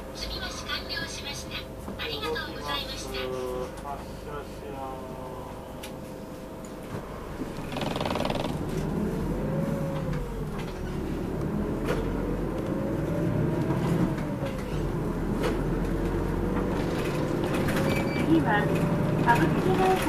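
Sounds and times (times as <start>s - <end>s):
bus engine rumble: 0.0s - 20.0s
drivetrain whine: 0.0s - 20.0s
bus body rattles: 7.4s - 9.0s, 13.4s - 20.0s.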